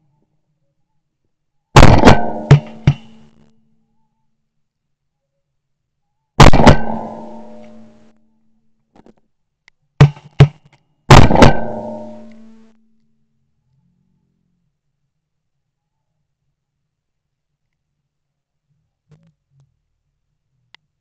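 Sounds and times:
shotgun shots: 1.8 - 3.3, 6.4 - 7.9, 11.1 - 12.6.

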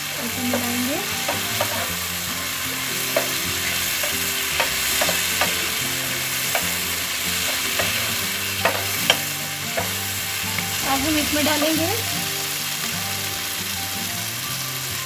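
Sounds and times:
spatula stirring food: 0.0 - 13.8
food sizzling in oil: 0.0 - 15.0
spatula clicking against pan: 0.4 - 2.0, 3.1 - 10.7.

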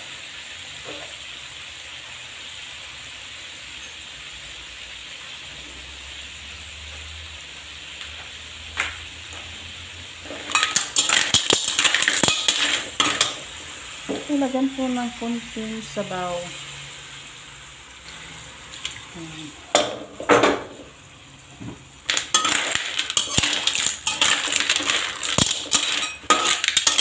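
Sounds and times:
clams sizzling in wok: 0.0 - 27.0
spatula stirring shells in pan: 10.1 - 15.1, 22.0 - 27.0.

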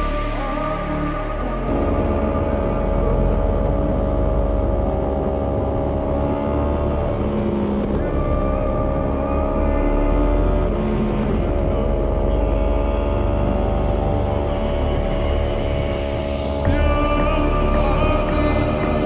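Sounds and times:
motorcycle engine and exhaust running: 1.7 - 19.0.

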